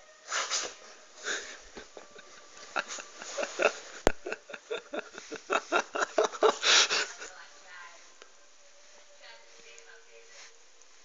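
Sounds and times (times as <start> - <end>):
person giggling through the nose: 1.2 - 7.2.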